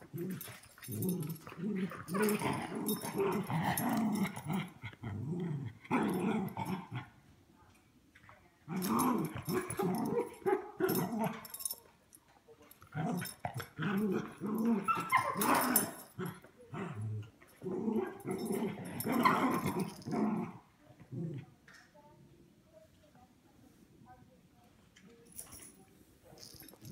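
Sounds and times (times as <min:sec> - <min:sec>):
small dogs growling: 0:00.0 - 0:07.1, 0:08.7 - 0:11.5, 0:12.8 - 0:21.5.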